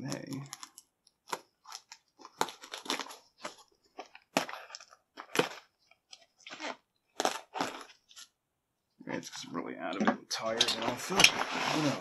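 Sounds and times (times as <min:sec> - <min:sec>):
plastic package crinkling: 0:00.1 - 0:08.3.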